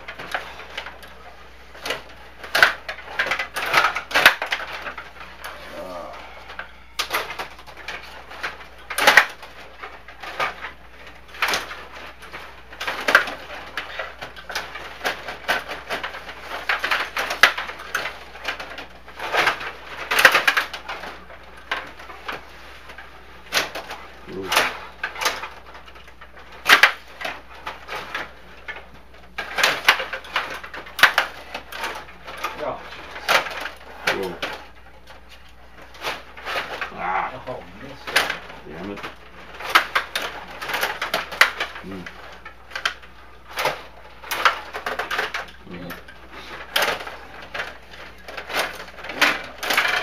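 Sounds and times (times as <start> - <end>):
low steady hum: 0.0 - 50.0.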